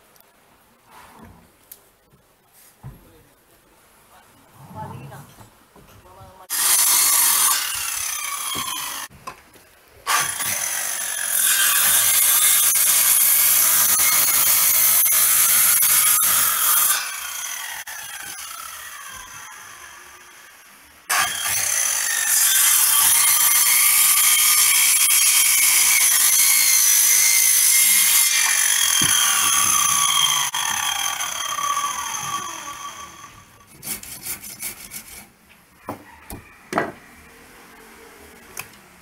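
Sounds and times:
circular saw cutting wood: 0:06.5 - 0:09.1, 0:10.1 - 0:35.3
tools and wood knocking: 0:35.8 - 0:37.0.

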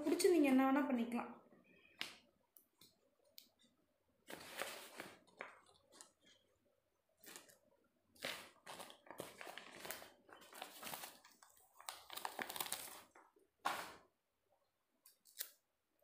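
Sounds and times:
sticker sheet crinkling: 0:08.2 - 0:13.9.

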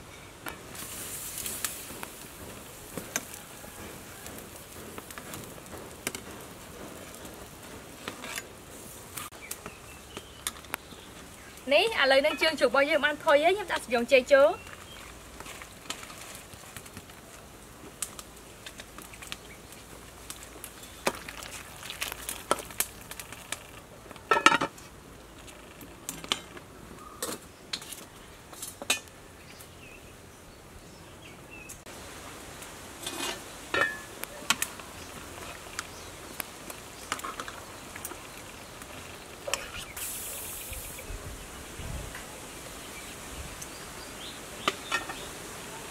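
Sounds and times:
metal pot and ladle clinking: 0:33.0 - 0:34.1
short hiss: 0:39.6 - 0:41.1.

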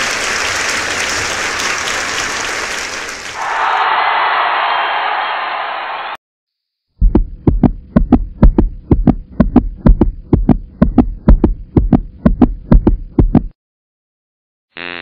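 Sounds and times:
deep double thumps: 0:07.0 - 0:13.6.

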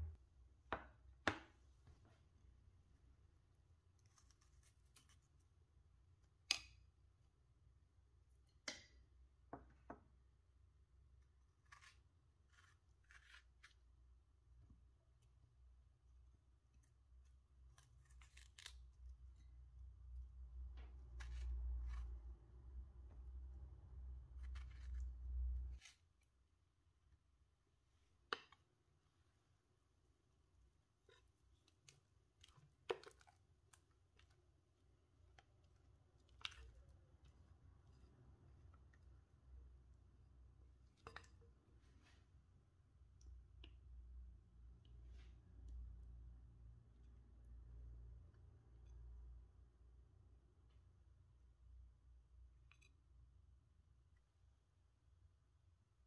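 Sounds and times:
knife slicing fruit: 0:11.2 - 0:14.0, 0:16.8 - 0:19.5, 0:20.9 - 0:22.4, 0:24.2 - 0:26.3.

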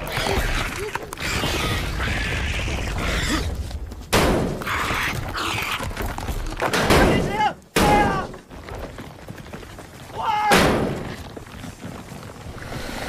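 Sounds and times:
snake hissing and growling: 0:12.5 - 0:13.0.

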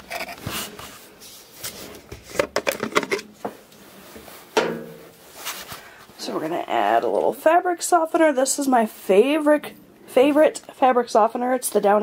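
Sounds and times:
clicks and knocks: 0:04.6 - 0:05.0.

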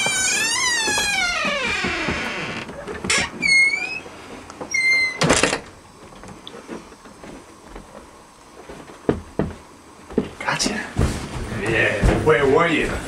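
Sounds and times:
door shutting with thud: 0:00.0 - 0:03.8
door hinges squeaking: 0:00.0 - 0:05.7.

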